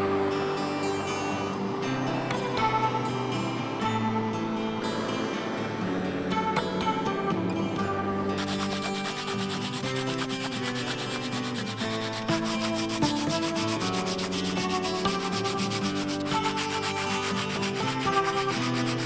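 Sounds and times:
sandpaper scratching on wood: 0:08.4 - 0:19.0.

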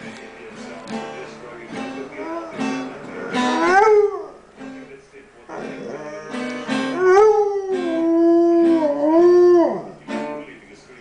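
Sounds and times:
dog howling: 0:02.2 - 0:04.4, 0:05.5 - 0:10.0.

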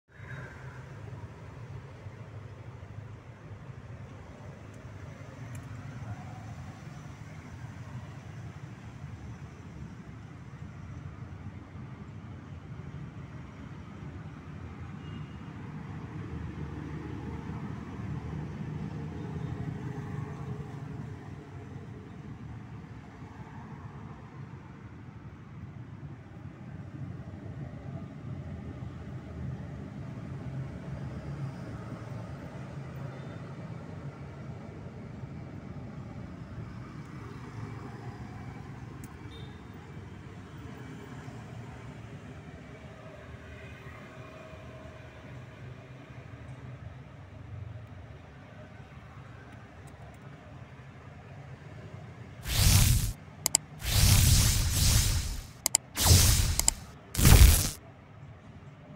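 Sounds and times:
short click: 0:52.4 - 0:57.8.

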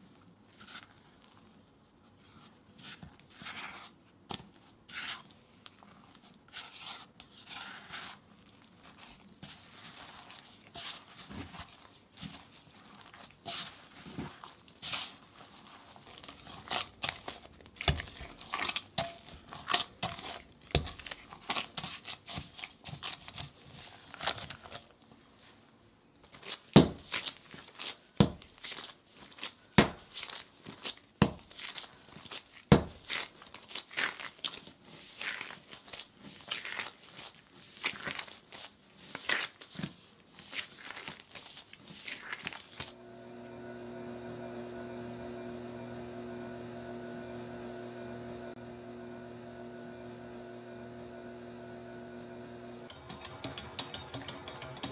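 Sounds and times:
gloves crinkling: 0:00.0 - 0:43.0
sticky dough squelching: 0:04.5 - 0:24.8, 0:26.3 - 0:42.9.

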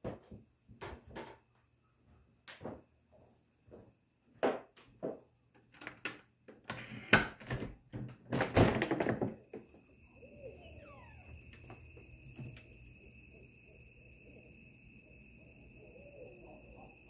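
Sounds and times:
night insects droning: 0:00.0 - 0:17.0
door knocks and thunks: 0:07.4 - 0:09.7.

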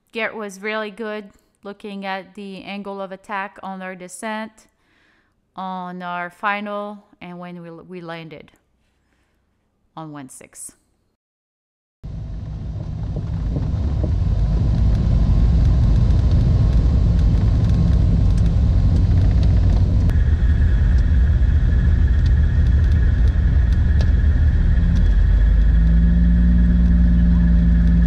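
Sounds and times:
propeller aircraft engines droning: 0:12.1 - 0:28.0
steady high-pitched tone: 0:12.1 - 0:28.0.

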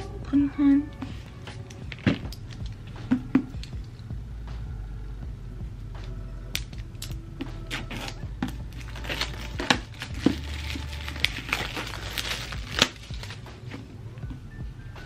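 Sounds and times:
plastic shrink-wrap crinkling: 0:07.7 - 0:13.5
book handling clicks and rustles: 0:07.7 - 0:13.9.

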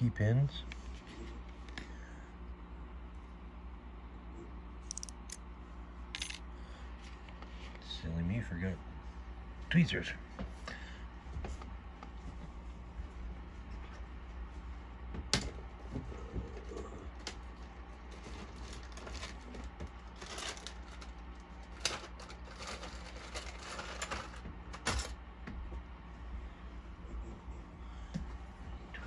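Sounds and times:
small objects clicking and rattling: 0:04.9 - 0:05.4.

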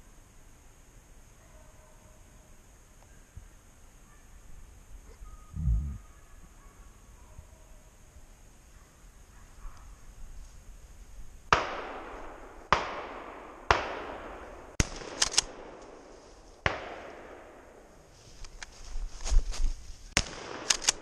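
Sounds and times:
shotgun shots echoing: 0:11.5 - 0:18.0, 0:20.2 - 0:21.0.

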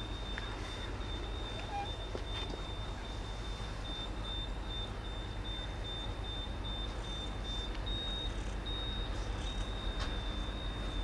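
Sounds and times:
high-pitched electronic beep: 0:00.0 - 0:11.0
low background rumble: 0:00.0 - 0:11.0.

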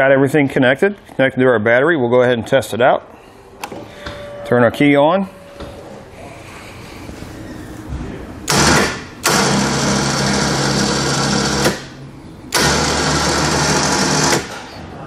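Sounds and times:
electric winch motor hum: 0:08.5 - 0:14.8.

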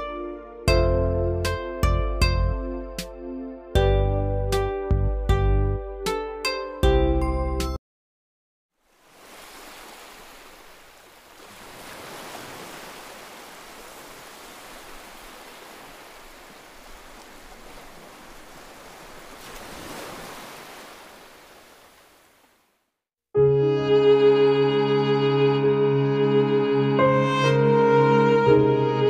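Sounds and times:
small waves breaking on shore: 0:08.8 - 0:22.8.

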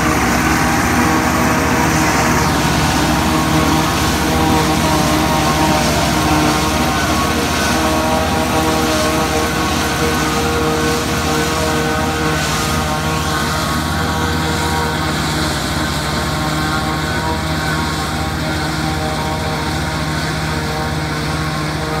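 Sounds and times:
forage harvester chopping: 0:00.0 - 0:21.9
tractor engine running: 0:00.0 - 0:22.0.

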